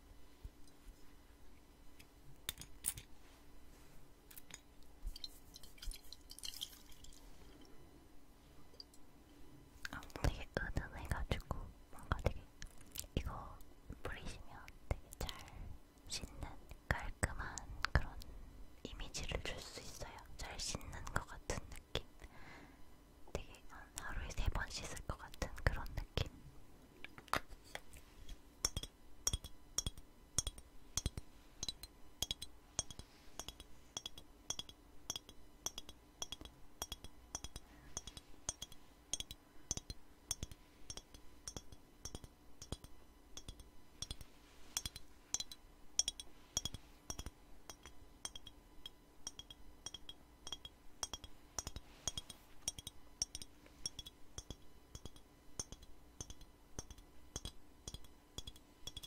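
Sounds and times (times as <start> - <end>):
fingernails tapping on glass bottle: 28.6 - 48.5, 49.3 - 59.0.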